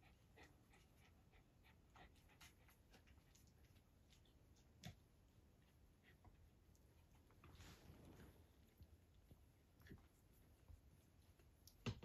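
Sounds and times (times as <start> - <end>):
puppies rustling on blankets: 7.0 - 11.5.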